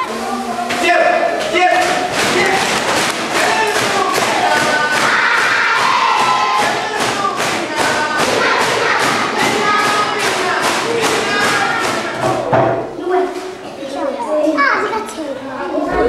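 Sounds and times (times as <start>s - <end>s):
steady beat of sharp strokes: 0.0s - 12.5s
children singing: 3.3s - 12.7s.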